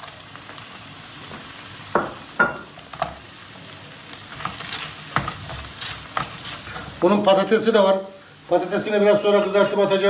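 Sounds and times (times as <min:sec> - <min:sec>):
onion sizzling in oil: 0:00.0 - 0:10.0
wooden spoon knocking a pan: 0:01.9 - 0:03.1.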